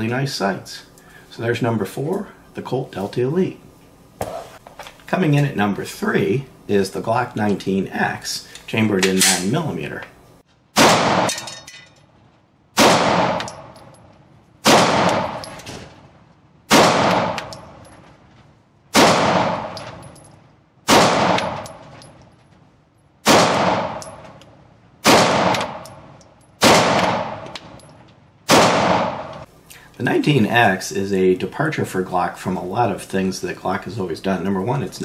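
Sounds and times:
pistol shots echoing indoors: 10.7s - 11.6s, 12.7s - 13.9s, 14.6s - 16.1s, 16.7s - 17.8s, 18.9s - 20.0s, 20.8s - 22.0s, 23.2s - 24.4s, 25.0s - 27.8s, 28.4s - 29.4s.

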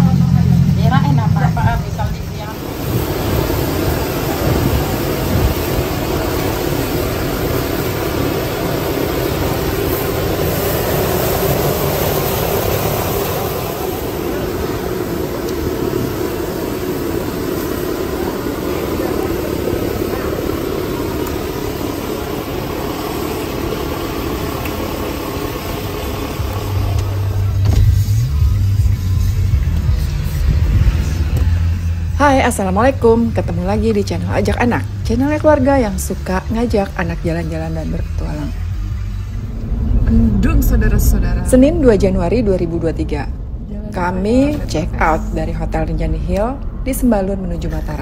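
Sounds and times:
charcoal grill roaring: 0.0s - 48.0s
background voices: 38.2s - 48.0s.

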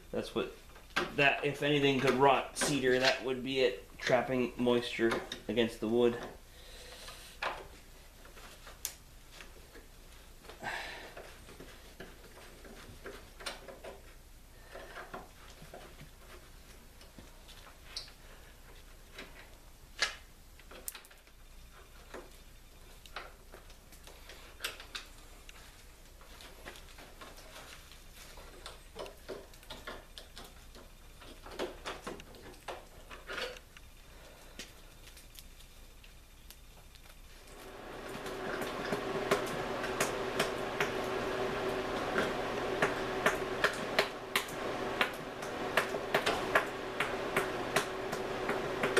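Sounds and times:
awl clicking and scraping: 34.5s - 48.9s.

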